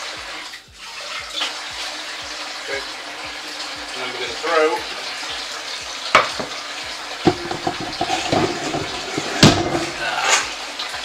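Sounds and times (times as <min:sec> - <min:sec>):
running water hiss: 0:00.0 - 0:11.0
cooking pot knocks: 0:06.1 - 0:06.6, 0:07.2 - 0:10.0.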